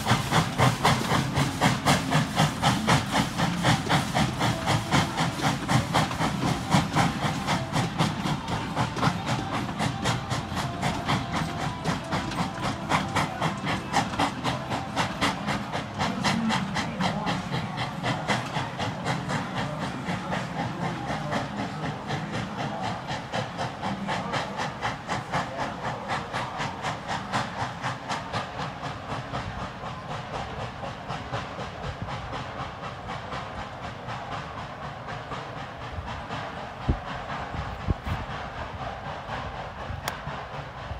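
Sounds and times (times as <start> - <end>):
steam locomotive chuffing: 0.0 - 40.9
train rumble: 0.0 - 40.9.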